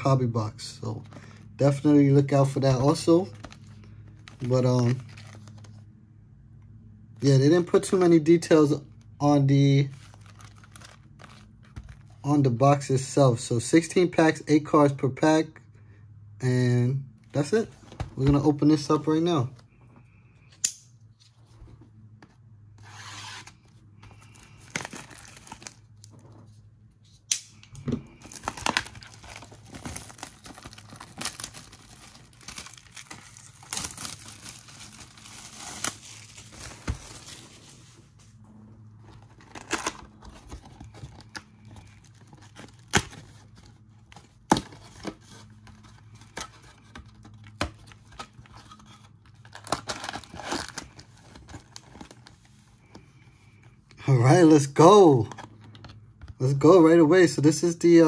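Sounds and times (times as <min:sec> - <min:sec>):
plastic wrapping crinkling: 0:09.8 - 0:12.1, 0:24.2 - 0:26.2, 0:28.1 - 0:38.1.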